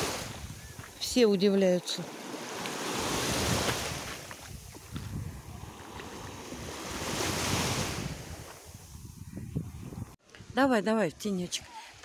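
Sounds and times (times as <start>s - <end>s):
waves washing on sandy shore: 0.0s - 0.6s, 1.2s - 9.1s
wind buffeting microphone: 0.0s - 1.0s, 3.0s - 10.8s.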